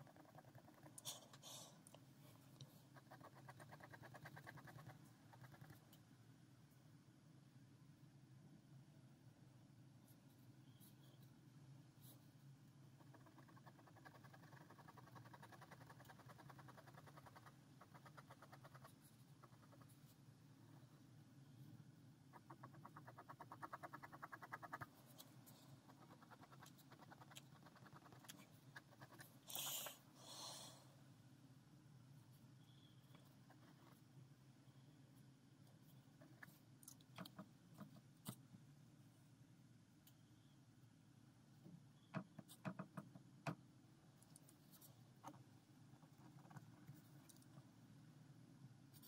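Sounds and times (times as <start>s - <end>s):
pen scratching on paper: 2.9s - 5.8s.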